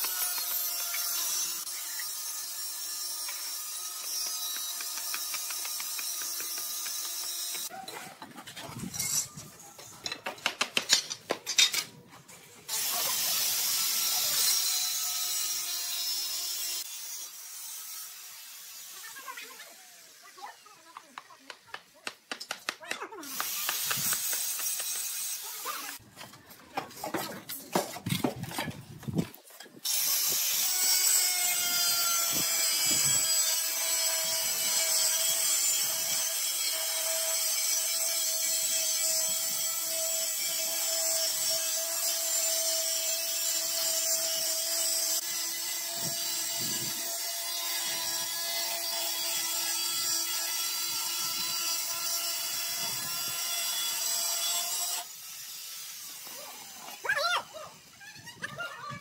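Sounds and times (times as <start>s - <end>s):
trowel scraping mortar: 0.0s - 14.8s, 22.4s - 26.0s.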